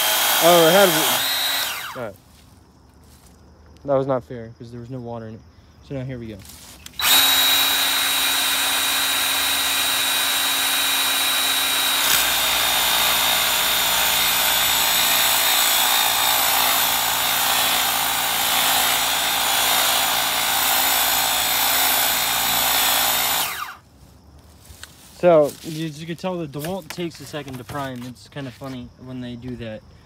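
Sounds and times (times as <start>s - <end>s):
pressure washer pump motor running: 0.0s - 2.0s, 7.0s - 23.8s.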